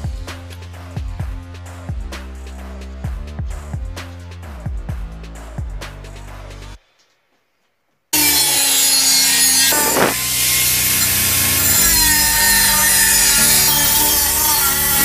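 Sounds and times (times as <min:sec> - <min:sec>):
angle grinder cutting steel: 0:08.2 - 0:15.0.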